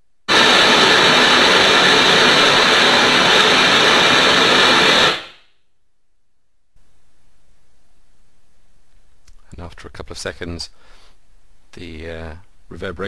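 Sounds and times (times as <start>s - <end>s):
loud broadband test noise: 0.3s - 5.4s.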